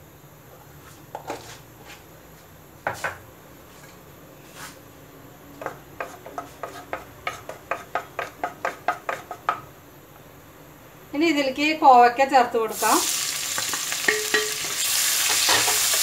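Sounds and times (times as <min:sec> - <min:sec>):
spatula scraping a pan: 0:06.0 - 0:08.0, 0:13.6 - 0:16.0.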